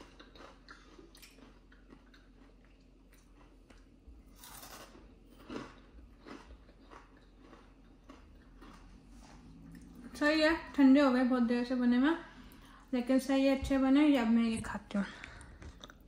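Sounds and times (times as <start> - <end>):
person crunching fried snack: 0.0 - 9.1.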